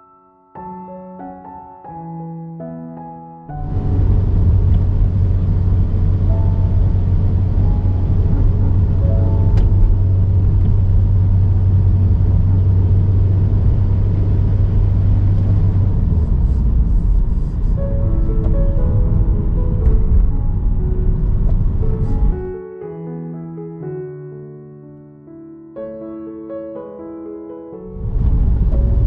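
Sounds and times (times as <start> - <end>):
car engine and road rumble: 3.6 - 22.6, 28.0 - 29.0.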